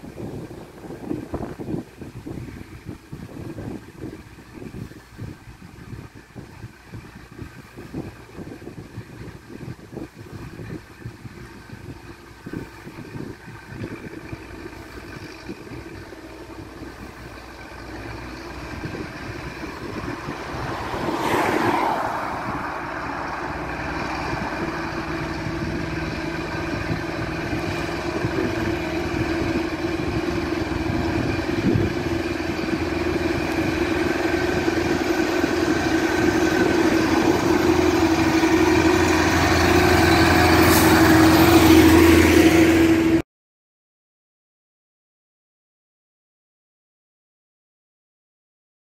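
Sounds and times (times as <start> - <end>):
tractor diesel engine running: 0.0 - 43.2
rushing whoosh: 18.0 - 43.2.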